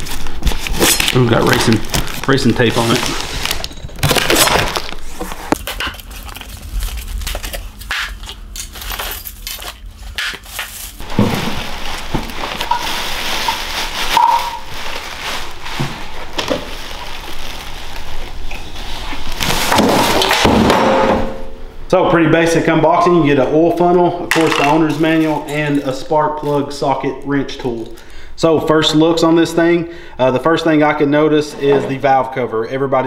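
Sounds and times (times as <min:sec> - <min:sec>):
plastic bag crinkling: 0:00.0 - 0:19.8, 0:24.3 - 0:28.2
knife slitting packing tape: 0:03.6 - 0:11.0.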